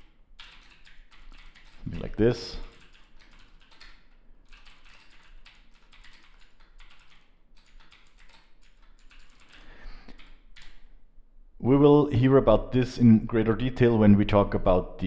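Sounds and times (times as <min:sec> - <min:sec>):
keyboard typing: 0:00.0 - 0:10.8.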